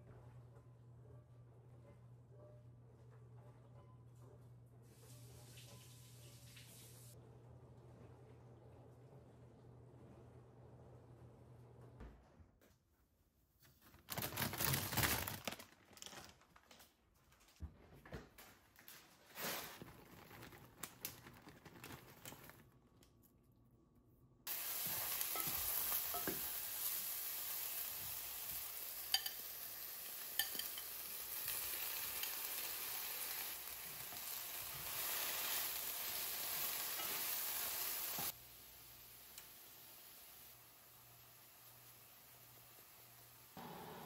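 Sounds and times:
vegetables sizzling in a pan: 24.5s - 44.0s.

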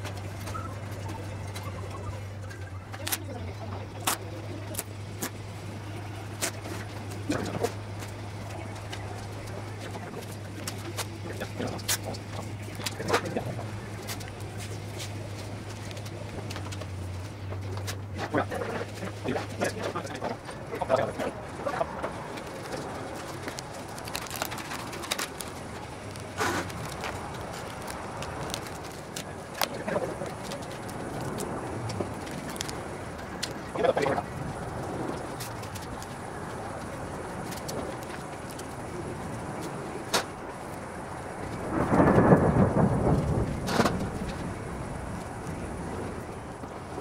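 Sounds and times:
plastic film crackling: 0.0s - 42.1s
steady low hum: 0.0s - 47.0s
masking tape pulled off roll: 23.4s - 29.8s.

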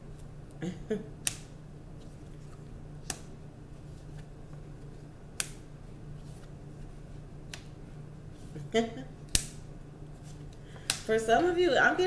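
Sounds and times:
faint low hum: 0.0s - 12.0s.

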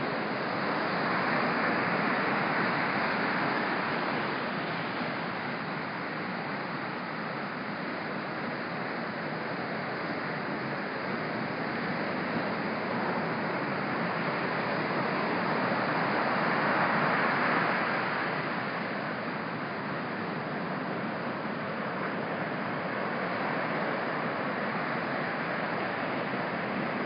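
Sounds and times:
ocean waves crashing: 11.0s - 27.0s.

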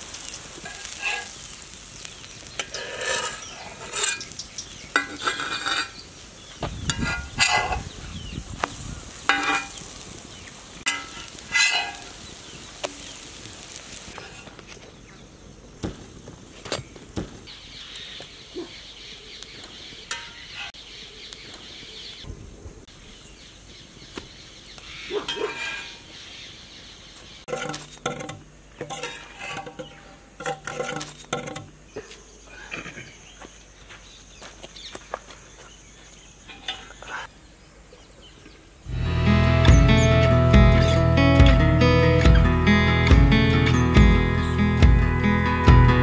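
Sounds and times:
birds calling: 0.1s - 22.3s, 23.0s - 46.0s
metal spatula scraping griddle: 0.5s - 1.6s, 2.4s - 6.0s, 6.8s - 8.0s, 9.3s - 9.9s, 10.8s - 13.1s, 25.2s - 26.0s, 27.5s - 31.8s.

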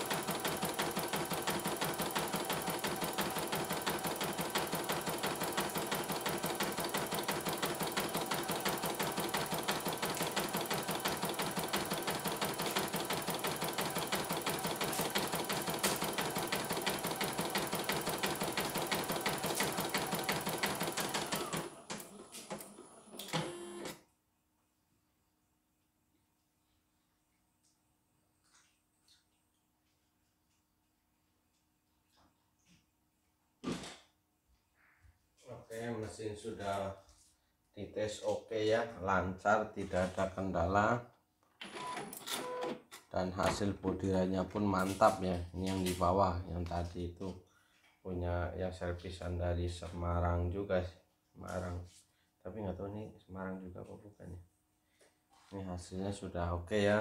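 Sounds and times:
embroidery machine stitching: 0.0s - 24.0s.

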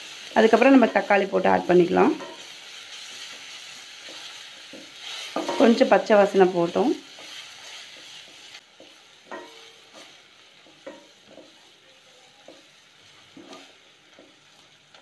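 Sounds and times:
faint sizzle of frying: 0.0s - 15.0s
spatula scraping and knocking a pan: 2.1s - 11.6s, 12.4s - 14.6s.

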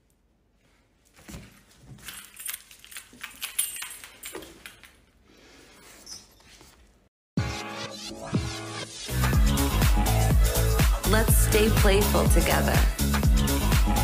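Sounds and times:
lanyard clips jingling: 2.0s - 5.0s.

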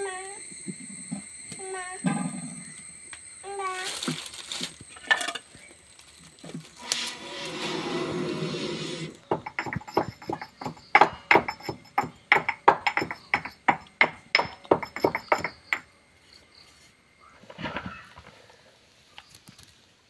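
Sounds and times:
sharp clinking knocks: 9.2s - 15.9s.

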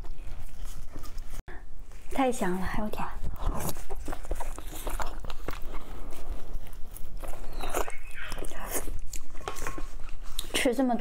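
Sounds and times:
wet biting and chewing: 3.4s - 10.6s.

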